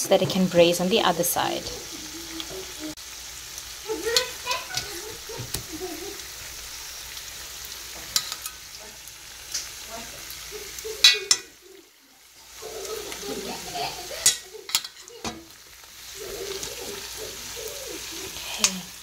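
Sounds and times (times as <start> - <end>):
chicken sizzling in oil: 0.0 - 19.0
spoon scraping a metal pan: 11.0 - 11.6.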